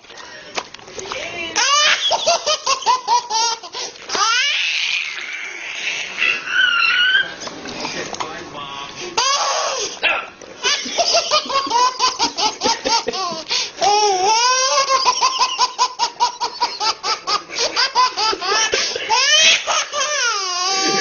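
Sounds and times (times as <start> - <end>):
baby belly-laughing: 1.6 - 7.4, 10.6 - 21.0
baby squealing laugh: 1.6 - 7.4, 10.6 - 21.0.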